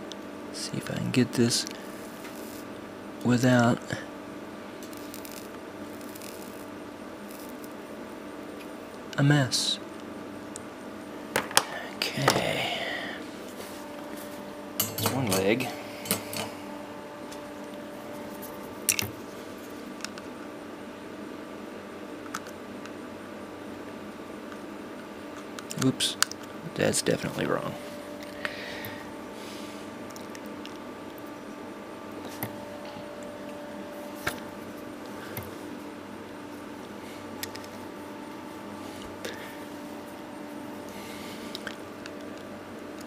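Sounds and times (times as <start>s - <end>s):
low electrical hum: 0.0s - 43.0s
man murmuring: 11.7s - 13.2s.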